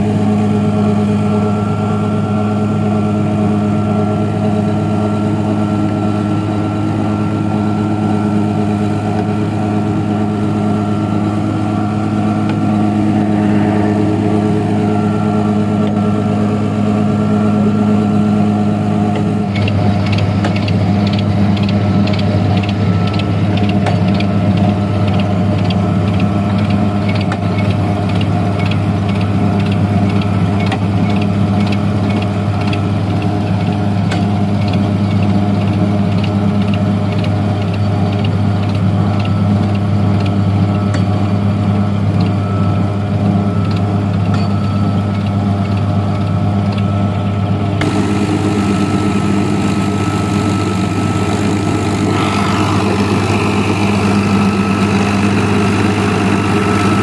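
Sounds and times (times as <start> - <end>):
tractor diesel engine running: 0.0 - 57.0
machine clacking: 19.2 - 41.1.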